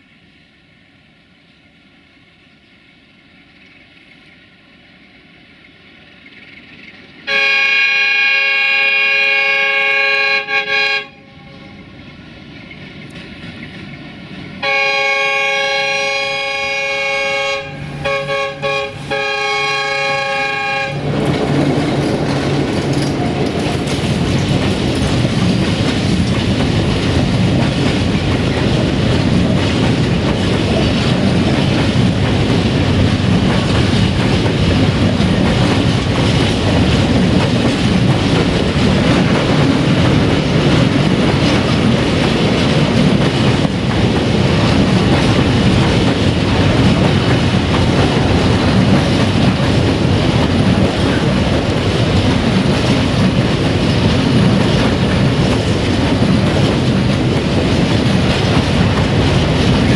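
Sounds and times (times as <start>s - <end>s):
train wheels rolling on rails: 0.0s - 59.9s
wheels clattering over rail: 20.2s - 59.9s.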